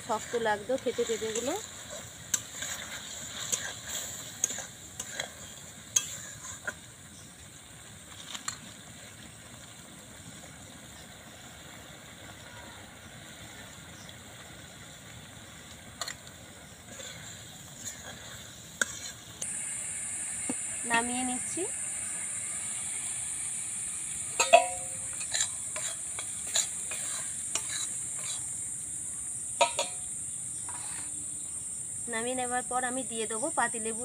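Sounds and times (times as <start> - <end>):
spatula scraping metal wok: 0.0 - 6.8, 16.8 - 28.7, 29.6 - 31.2
steady low hiss: 0.0 - 34.0
spatula tapping pan: 24.4 - 28.4, 29.6 - 30.1.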